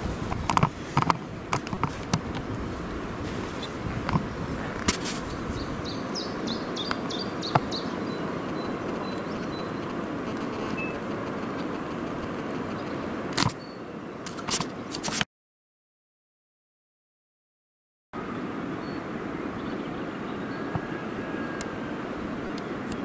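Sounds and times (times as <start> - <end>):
steady rush of noise: 0.0 - 15.2, 18.2 - 23.0.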